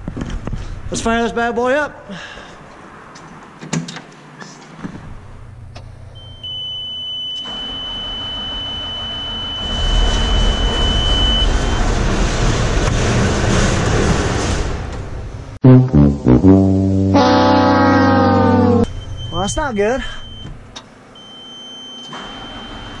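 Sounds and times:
high warning buzzer: 16.5s - 18.9s.

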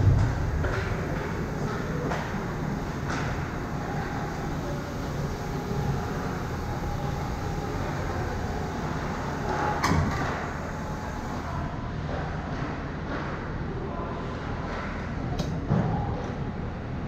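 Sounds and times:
low rumble and hiss: 0.0s - 17.0s.

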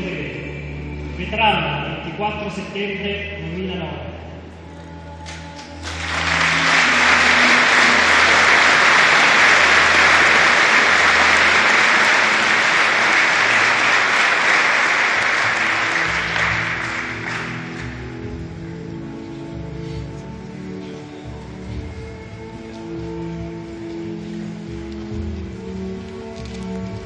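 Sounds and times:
large audience applauding: 5.8s - 18.2s.

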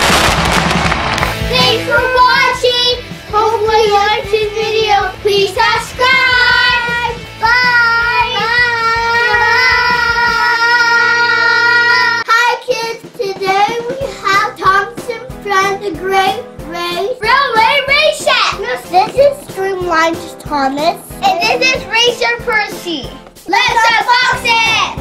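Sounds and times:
backing music: 0.0s - 25.0s
children singing: 3.3s - 12.3s.

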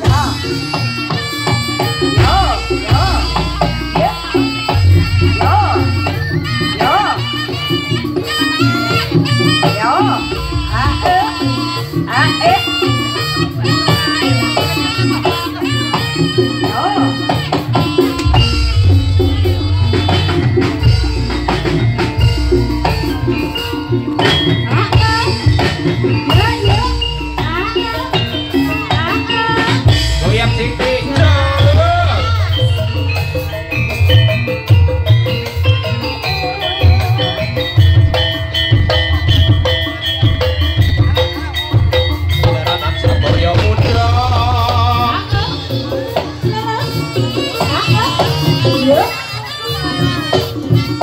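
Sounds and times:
held pitched tones: 0.0s - 12.8s, 15.6s - 34.4s
bright high melody: 0.0s - 51.0s
drums and percussion: 0.0s - 51.0s
deep bass: 2.1s - 7.0s, 10.1s - 11.7s, 18.2s - 28.4s, 29.9s - 34.4s, 42.3s - 45.8s.

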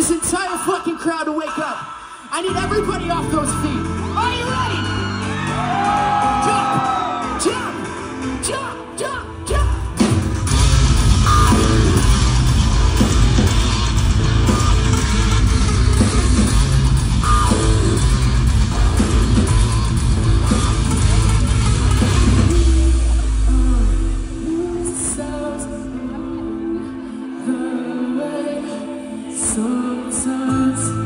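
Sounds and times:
live metal band playing: 9.7s - 26.6s.

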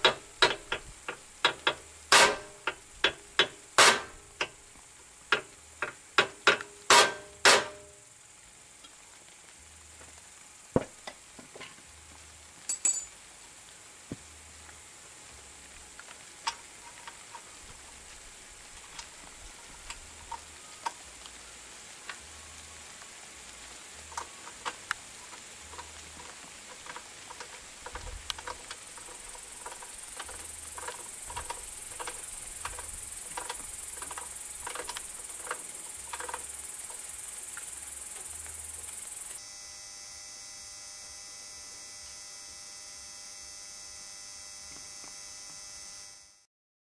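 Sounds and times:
steady hiss: 0.0s - 46.5s
metal parts and tools clinking: 12.7s - 13.1s
electrical hum: 13.4s - 46.4s.

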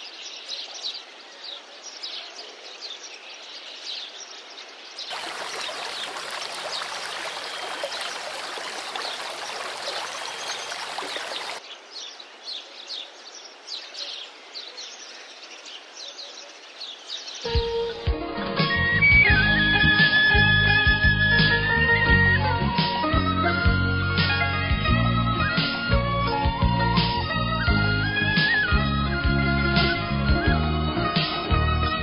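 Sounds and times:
small birds chirping: 0.0s - 17.7s
stream running over rocks: 5.1s - 11.6s.

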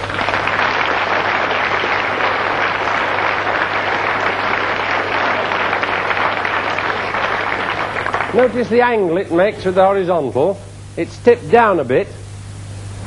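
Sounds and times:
audience applauding: 0.0s - 9.1s
low steady hum: 0.0s - 13.0s.

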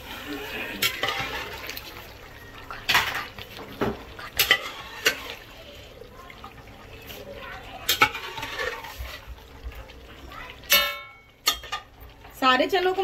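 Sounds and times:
metal clinking on metal pots: 0.6s - 1.7s, 2.8s - 5.4s, 7.8s - 9.2s, 10.6s - 13.0s.

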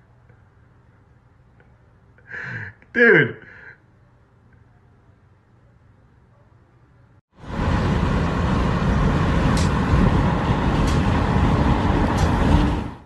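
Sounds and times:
wind and road noise from car: 7.4s - 13.0s
wind buffeting microphone: 7.5s - 13.0s.

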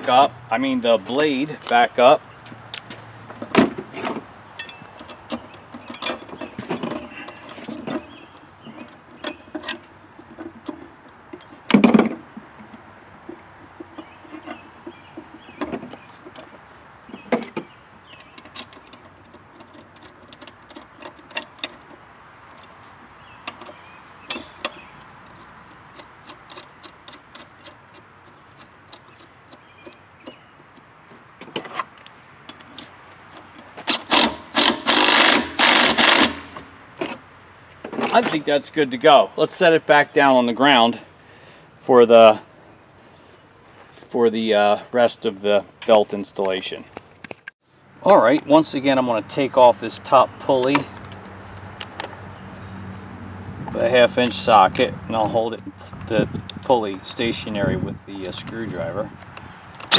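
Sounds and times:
metal clicks and clinks: 4.6s - 12.2s, 17.4s - 22.8s, 23.4s - 30.9s, 48.9s - 52.1s.

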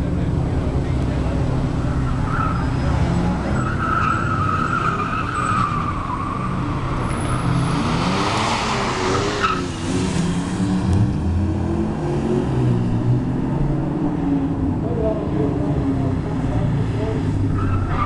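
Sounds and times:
tires squealing: 1.2s - 11.0s, 16.9s - 18.0s
car engine revving hard: 7.1s - 13.6s.

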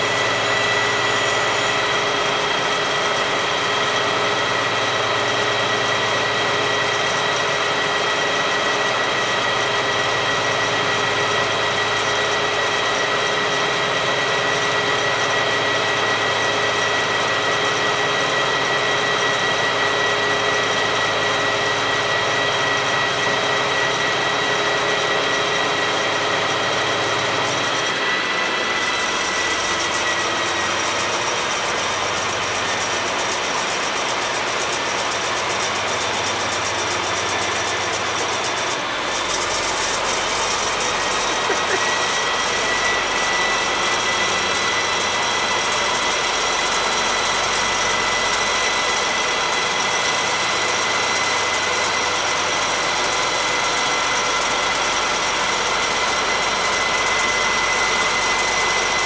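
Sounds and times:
high-pitched whine: 0.0s - 17.7s
diesel locomotive idling: 0.0s - 59.0s.

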